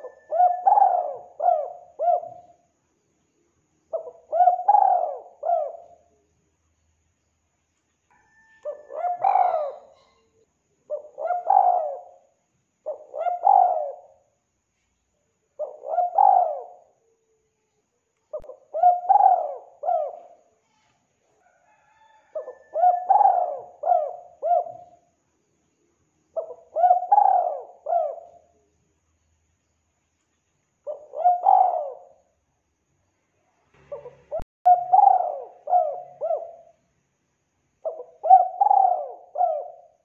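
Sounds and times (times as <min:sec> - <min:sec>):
dove cooing: 0:00.0 - 0:02.6, 0:03.9 - 0:06.1, 0:08.2 - 0:10.3, 0:10.9 - 0:14.2, 0:15.6 - 0:17.2, 0:18.3 - 0:20.6, 0:21.5 - 0:25.0, 0:26.4 - 0:28.6, 0:30.9 - 0:32.3, 0:33.9 - 0:36.8, 0:37.8 - 0:40.0.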